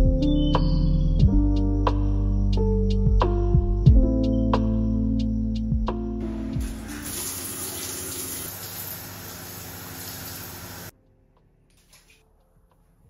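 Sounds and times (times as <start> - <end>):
shower running: 6.3 - 10.9, 11.8 - 12.2.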